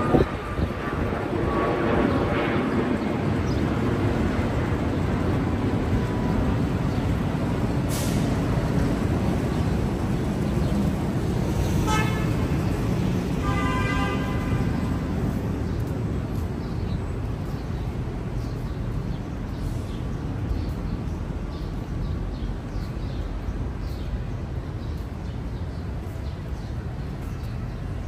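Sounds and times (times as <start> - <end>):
city street traffic: 0.0 - 28.0
car horn toot: 11.8 - 12.3.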